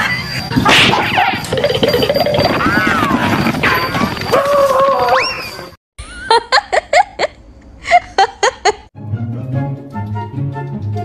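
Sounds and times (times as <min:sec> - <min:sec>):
woman giggling: 0:06.0 - 0:08.9.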